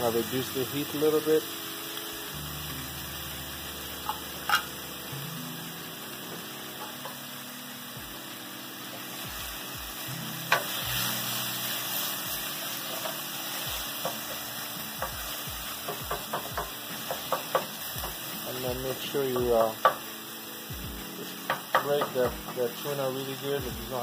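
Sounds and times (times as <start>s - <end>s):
food sizzling in oil: 0.0s - 24.0s
spoon knocking against pan: 4.0s - 4.7s, 6.8s - 7.2s, 15.0s - 18.2s, 19.4s - 20.1s, 21.4s - 22.6s.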